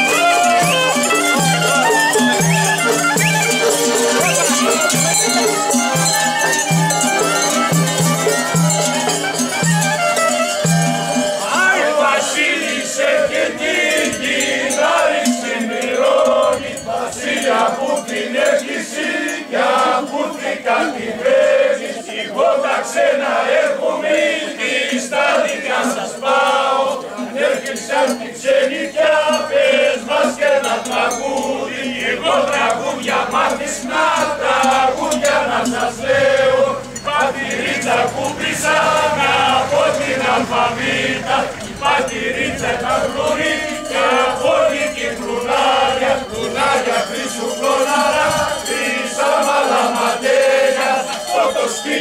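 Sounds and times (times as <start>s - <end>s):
crowd noise: 0.0s - 52.0s
men singing and calling out: 0.0s - 52.0s.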